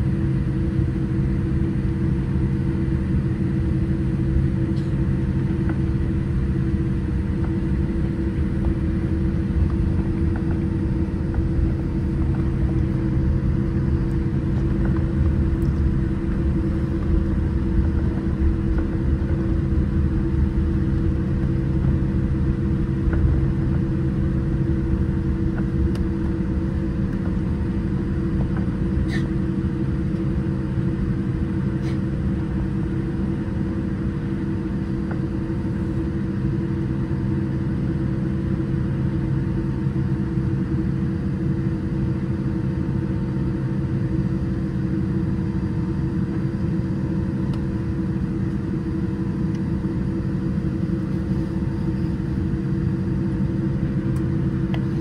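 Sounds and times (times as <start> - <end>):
jet engines idling in cabin: 0.0 - 55.0.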